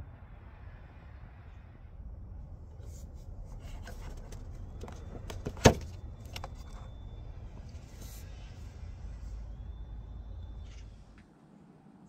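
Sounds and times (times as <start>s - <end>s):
rubber and plastic clicks and scrapes: 3.5s - 6.9s.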